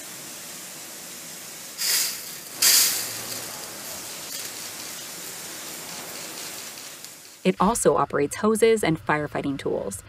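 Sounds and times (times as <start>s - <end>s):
hose nozzle spraying bursts: 0.0s - 7.5s
steady hiss: 0.0s - 7.6s.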